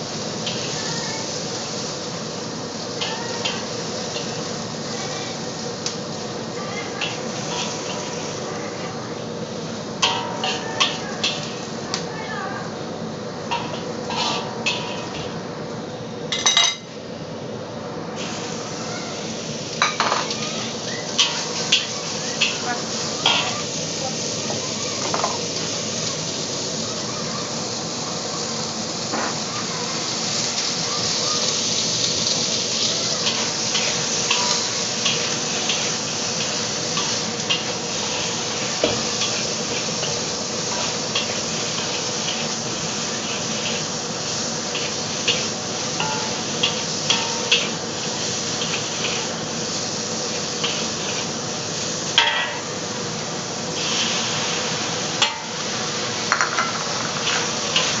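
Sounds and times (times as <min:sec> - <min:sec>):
meat sizzling in a wok: 0:00.0 - 0:58.0
spatula clinking and scraping pan: 0:06.8 - 0:08.8, 0:10.0 - 0:11.8, 0:13.5 - 0:15.4, 0:19.8 - 0:23.7, 0:32.0 - 0:49.4, 0:50.3 - 0:51.4, 0:52.1 - 0:52.7, 0:55.2 - 0:55.7, 0:56.3 - 0:58.0.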